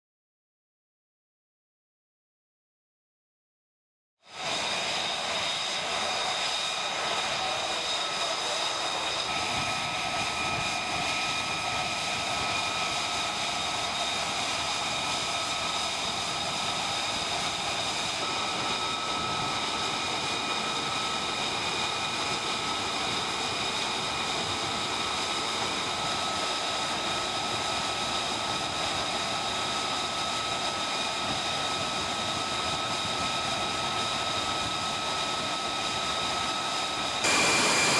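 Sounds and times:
jet engine idling: 4.3 - 37.9
high whining tones: 37.2 - 37.9.

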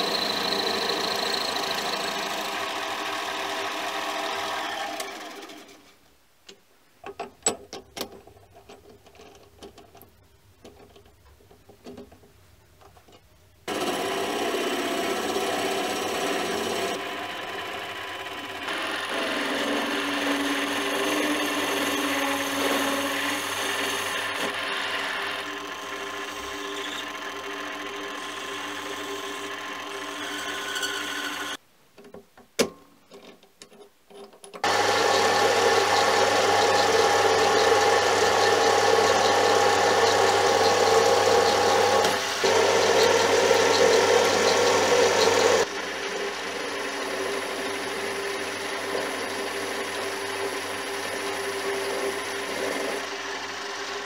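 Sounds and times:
lathe motor whining: 0.0 - 5.8, 13.7 - 31.6, 34.6 - 54.0.

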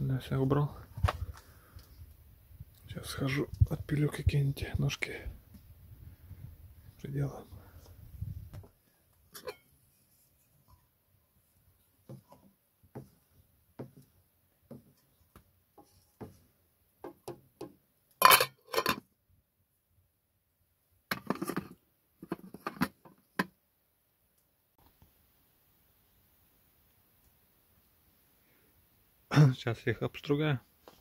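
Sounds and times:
pot lid clinking and clattering: 9.4 - 9.6, 18.2 - 19.0.

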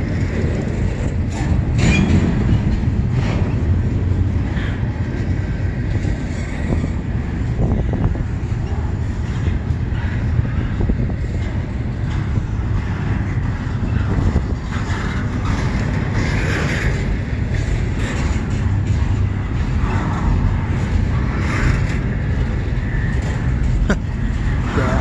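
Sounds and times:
freight train wheels rumbling: 0.0 - 25.0
train cars banging: 0.0 - 25.0.

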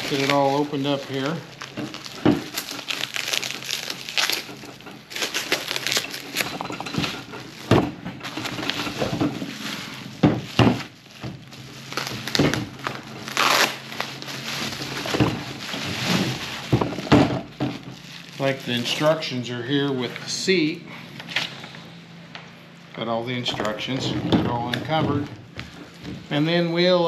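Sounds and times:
bubble wrap crinkling: 0.0 - 19.4.

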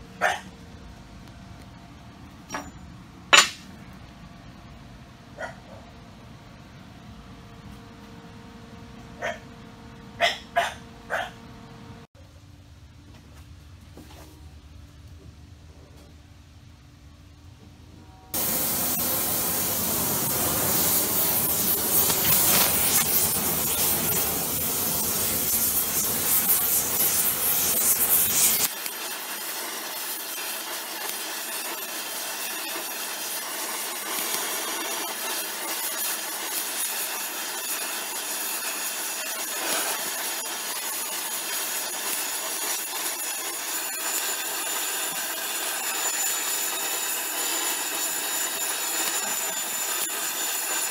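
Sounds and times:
gas torch flame hissing: 18.4 - 50.9.

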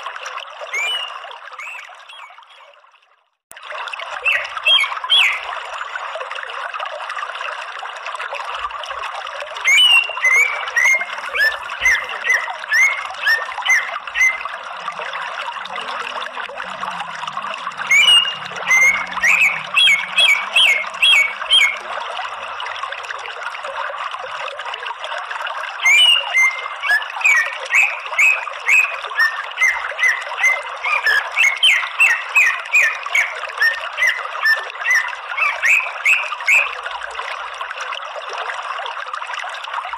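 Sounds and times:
running water: 0.0 - 39.9
bird singing sharp repeated notes: 0.7 - 2.7, 4.2 - 5.5, 9.7 - 14.5, 17.8 - 21.8, 25.9 - 36.7.

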